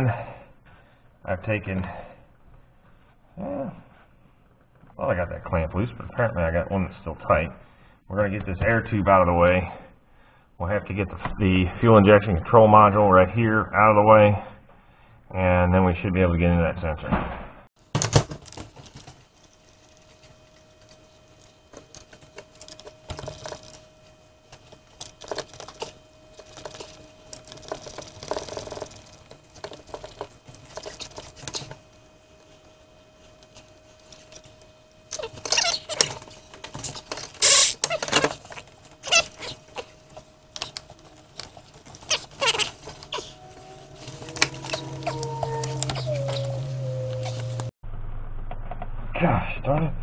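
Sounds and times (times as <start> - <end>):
faint steady hum: 17.8 - 50.0
clicks and knocks of plastic parts: 17.9 - 19.2.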